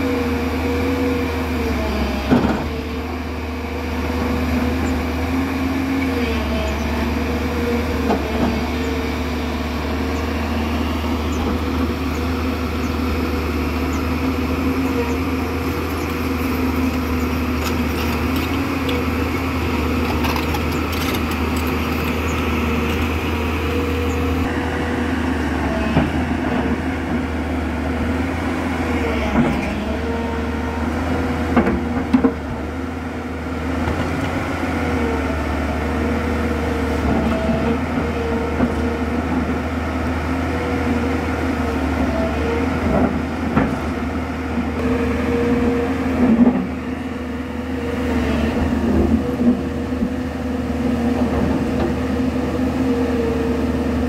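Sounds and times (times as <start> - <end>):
hydraulic whine: 0.0 - 32.8
excavator diesel engine running: 0.0 - 54.0.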